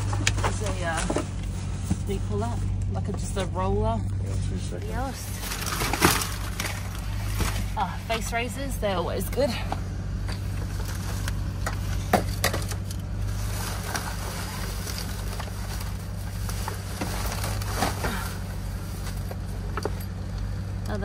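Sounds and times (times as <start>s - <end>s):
rustling of packaged items: 0.0s - 3.3s, 4.1s - 8.4s, 10.4s - 19.9s
steady low hum: 0.0s - 21.0s
knocks and clicks of items handled: 9.7s - 13.0s.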